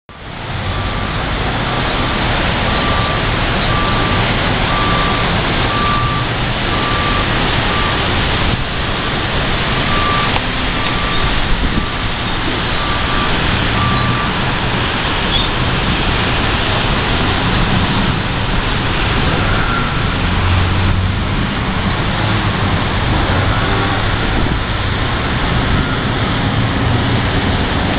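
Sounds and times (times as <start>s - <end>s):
heavy traffic on wet roads: 0.1s - 27.9s
reversing alarm beeping: 2.7s - 14.4s.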